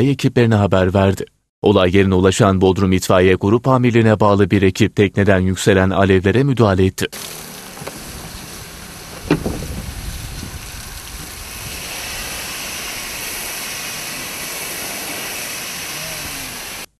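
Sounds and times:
rushing hissing water spray: 7.2 - 17.0.

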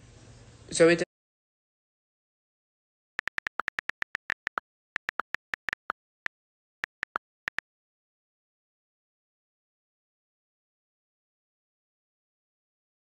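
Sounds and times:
phone keyboard clicks: 3.2 - 6.0, 6.8 - 7.6.

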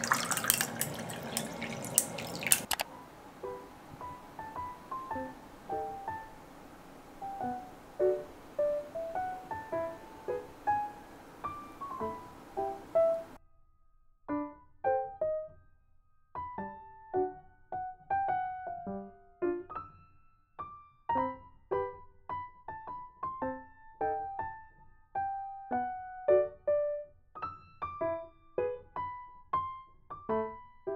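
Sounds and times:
gentle piano melody: 0.0 - 13.4, 14.3 - 30.9
faint hiss: 2.9 - 13.4.

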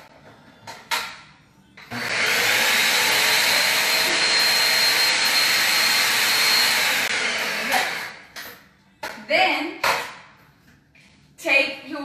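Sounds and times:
food processor running: 1.9 - 8.1.

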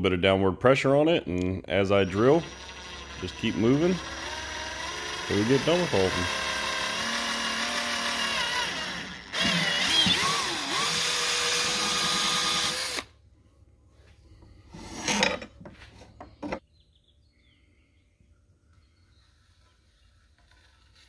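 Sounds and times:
electric drill boring through pipe: 2.0 - 13.1.

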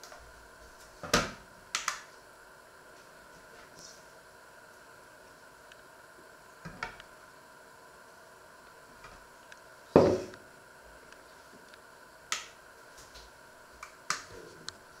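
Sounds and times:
bowl knocking on wooden countertop: 10.0 - 10.3.

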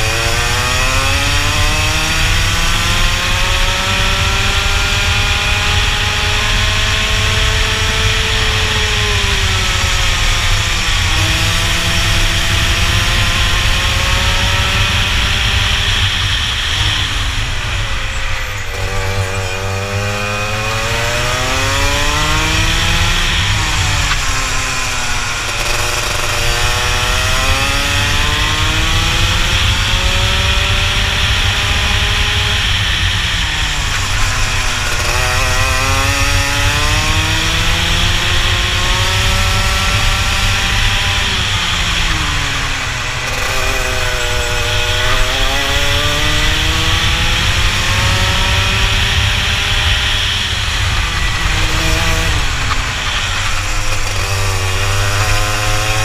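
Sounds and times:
kart engine revving: 0.0 - 56.0.

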